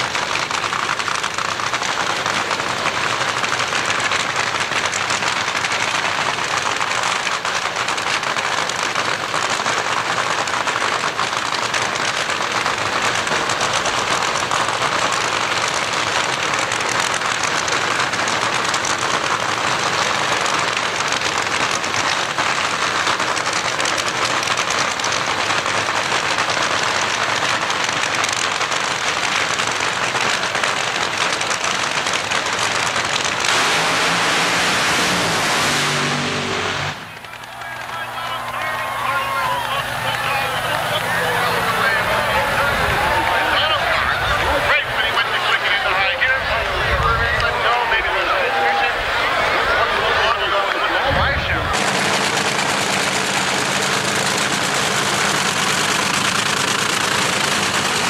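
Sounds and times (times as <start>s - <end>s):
drag racing engine crackling: 0.0s - 58.0s.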